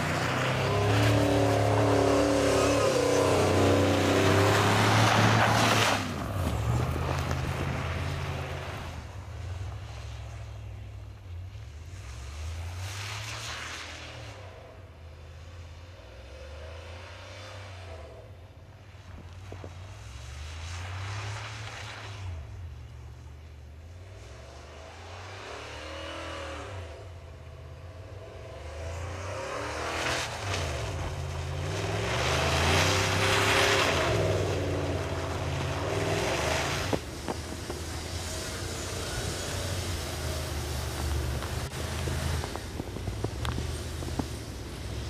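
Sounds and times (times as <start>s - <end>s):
engine revving hard: 0.0s - 6.1s
rushing spray of snow: 29.5s - 45.0s.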